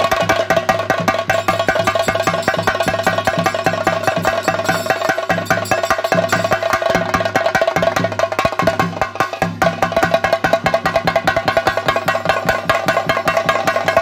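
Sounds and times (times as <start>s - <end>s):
rapid drumming: 0.0s - 14.0s
steady ringing tone: 1.3s - 6.6s.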